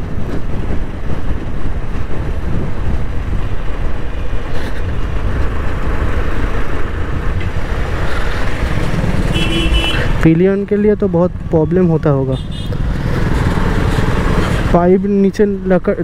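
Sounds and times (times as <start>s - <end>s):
wind noise: 0.0s - 10.3s
motorcycle engine rumble: 0.0s - 14.9s
tyre noise on rough road: 0.0s - 16.0s.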